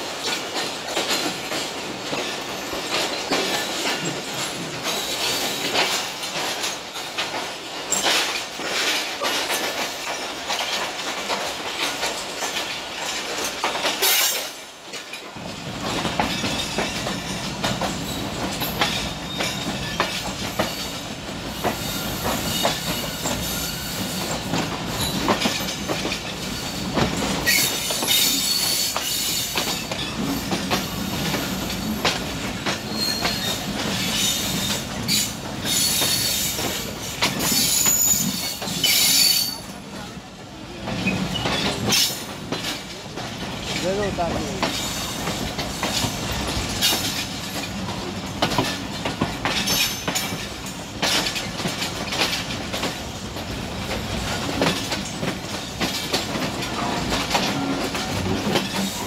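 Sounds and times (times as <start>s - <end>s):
train low rumble: 0.0s - 59.0s
train wheels clattering over rail joints: 0.0s - 59.0s
high wheel squeal: 32.9s - 36.6s, 37.5s - 39.6s.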